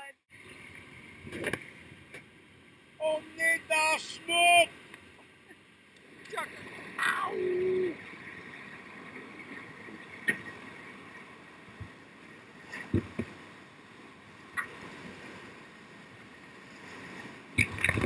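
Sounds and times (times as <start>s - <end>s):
waves splashing over a raft: 0.0s - 18.0s
whitewater rushing: 3.0s - 4.9s, 6.1s - 11.5s.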